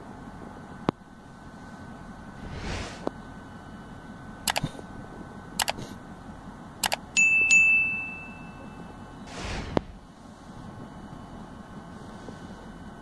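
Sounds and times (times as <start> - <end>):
faint background rumble: 0.0 - 7.2, 8.7 - 13.0
whoosh: 2.4 - 3.1, 9.3 - 10.0
quick mouse clicks: 4.5 - 4.7, 5.6 - 5.8
bell ding: 7.2 - 8.9.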